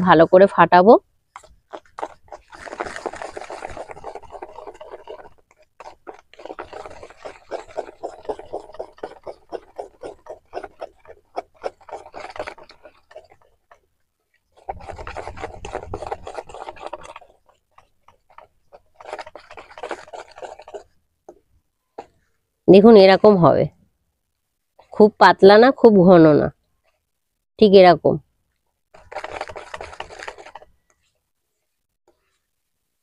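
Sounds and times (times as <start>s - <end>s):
whisk scraping metal bowl: 1.4s - 21.4s, 28.9s - 31.0s.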